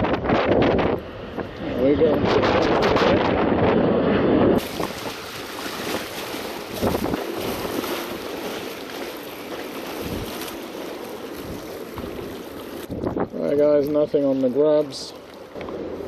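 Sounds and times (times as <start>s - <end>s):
wind gusting on microphone: 0.0s - 16.0s
water hiss: 4.6s - 13.0s.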